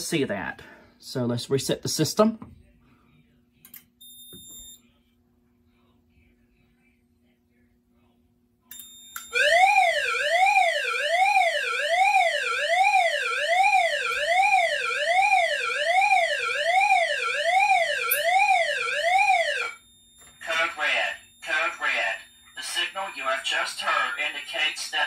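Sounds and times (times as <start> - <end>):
sweeping electronic alarm tone: 9.2 - 23.9.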